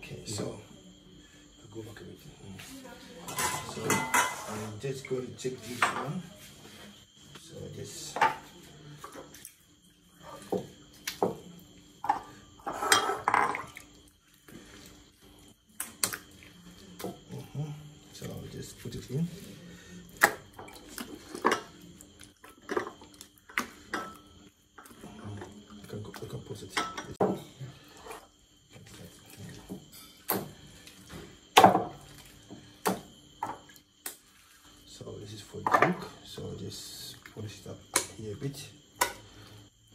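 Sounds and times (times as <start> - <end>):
bowls knocking and clinking: 3.2 - 4.5, 12.0 - 13.8, 26.7 - 27.6
wet dough squelching and slapping: 13.8 - 17.5.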